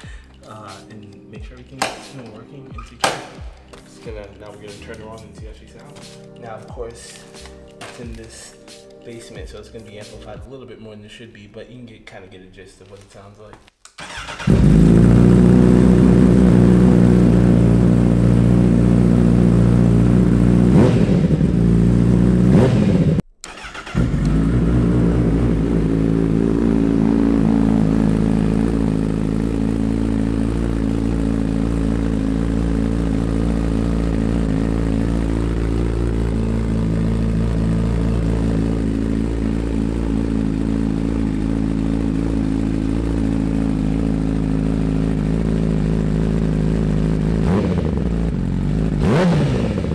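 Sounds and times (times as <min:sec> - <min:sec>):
motorcycle engine idling and revving: 0:14.0 - 0:49.9.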